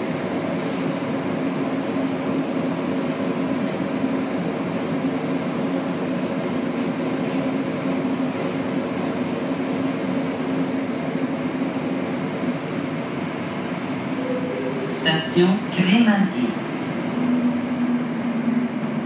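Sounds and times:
metro train running through tunnel: 0:00.0 - 0:19.0
train motor tones: 0:13.6 - 0:19.0.

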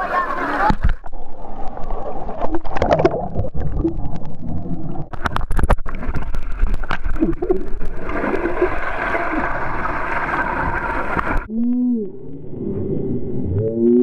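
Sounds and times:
low underwater rumble: 0:00.7 - 0:14.0
bubbles gurgling underwater: 0:01.1 - 0:11.5.

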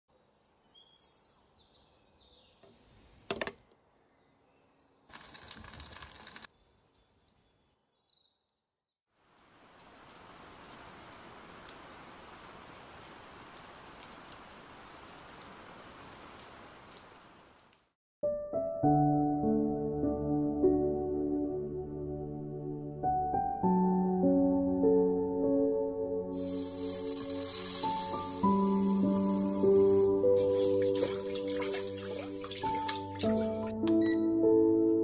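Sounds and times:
steady hiss: 0:26.4 - 0:30.2.

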